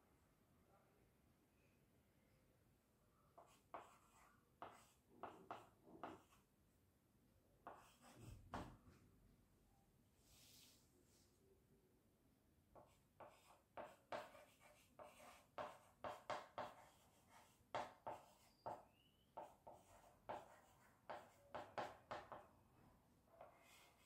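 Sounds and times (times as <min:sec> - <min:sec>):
chalk scratching on blackboard: 0:03.4 - 0:06.4, 0:07.6 - 0:08.6, 0:12.8 - 0:22.5, 0:23.4 - 0:24.0.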